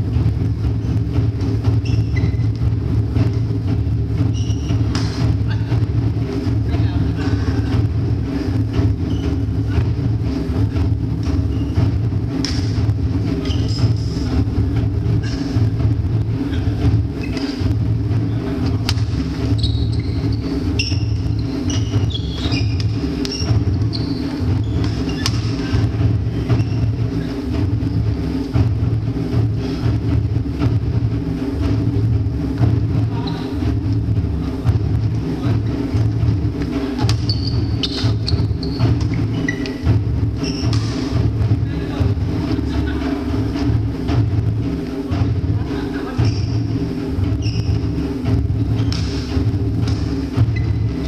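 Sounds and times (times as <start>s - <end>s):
steady low rumble: 0.0s - 51.0s
sneakers squeaking on wooden floor: 0.8s - 3.5s, 4.1s - 6.0s, 7.1s - 15.7s, 16.4s - 28.3s, 32.6s - 41.6s, 46.0s - 51.0s
racket striking shuttlecock: 4.9s - 5.3s, 12.4s - 12.8s, 18.8s - 19.2s, 24.8s - 25.9s, 40.6s - 41.2s, 48.9s - 50.1s.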